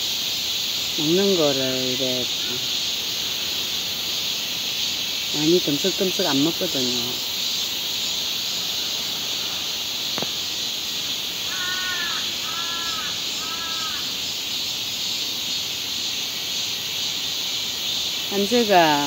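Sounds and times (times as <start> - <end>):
insects droning: 0.0 - 19.0
crow cawing: 11.4 - 14.2.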